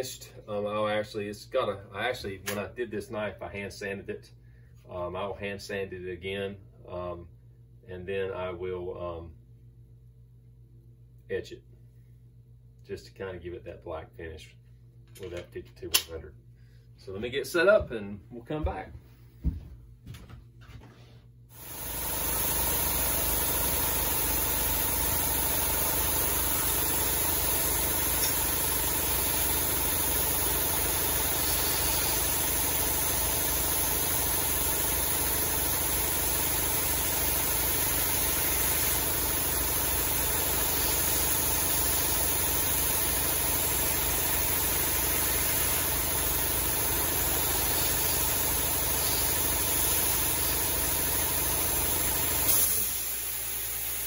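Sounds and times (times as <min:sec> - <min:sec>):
belt grinder grinding blade: 0:21.6 - 0:53.9.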